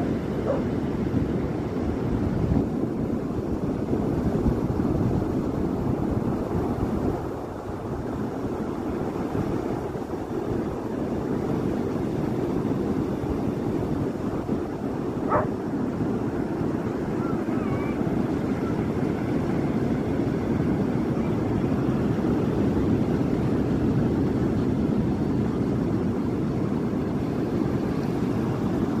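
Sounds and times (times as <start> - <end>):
waves breaking on beach: 0.0 - 29.0
faint whistling glides: 0.4 - 0.7, 15.2 - 15.5, 17.1 - 19.0.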